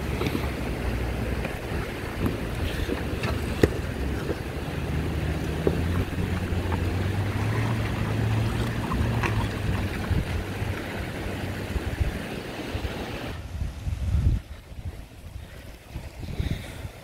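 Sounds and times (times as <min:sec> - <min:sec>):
car engine running: 0:00.0 - 0:11.7
rocks clicking under tyres: 0:00.0 - 0:11.8
wind buffeting microphone: 0:00.0 - 0:17.0.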